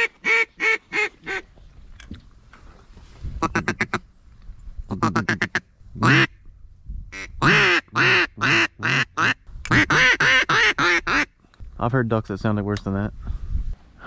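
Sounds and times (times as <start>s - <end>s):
duck call quacks: 0.0s - 1.4s, 3.4s - 4.0s, 4.9s - 6.3s, 7.2s - 11.3s.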